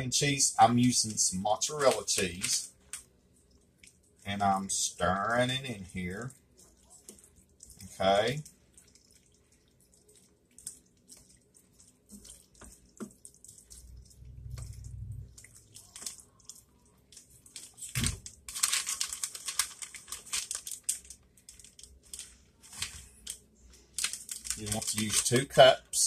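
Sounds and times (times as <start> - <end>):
plastic bag crinkling: 0.6 - 3.0, 4.4 - 25.6
spoon stirring wet pasta: 1.8 - 18.5.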